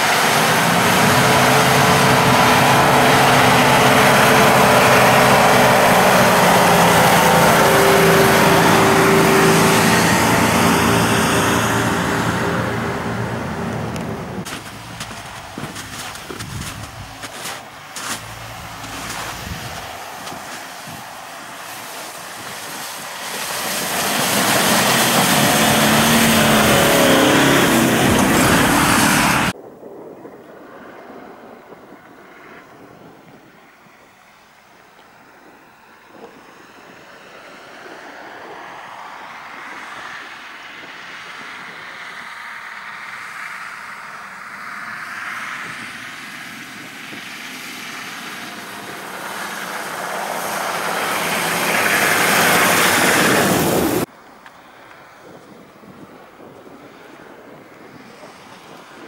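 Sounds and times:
truck engine pulling under load: 0:00.0 - 0:29.6, 0:41.2 - 0:54.1
tyres on muddy slush: 0:00.0 - 0:30.1, 0:34.2 - 0:59.0.

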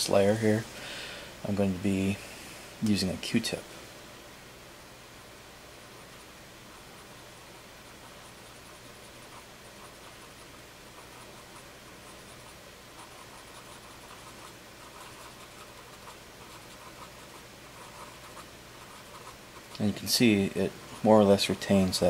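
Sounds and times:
cotton swab rubbing paper: 0:08.0 - 0:19.8.

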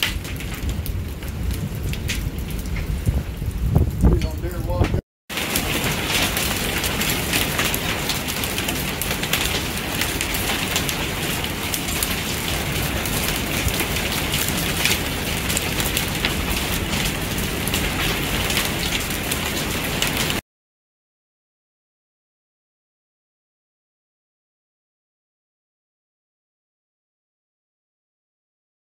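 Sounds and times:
heavy rain and hail falling: 0:00.0 - 0:20.4.

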